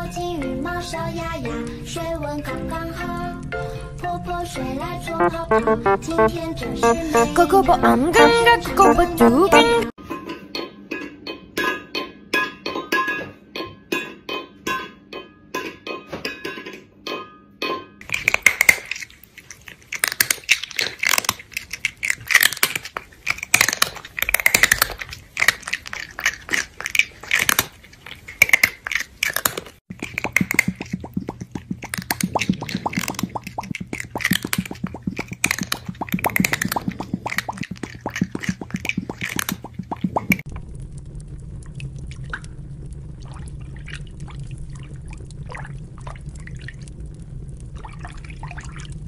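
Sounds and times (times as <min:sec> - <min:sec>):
cartoon smacking clicks: 0:05.2 - 0:08.0, 0:28.4 - 0:40.4
cartoon crunching and munching: 0:05.2 - 0:09.9, 0:18.0 - 0:40.6.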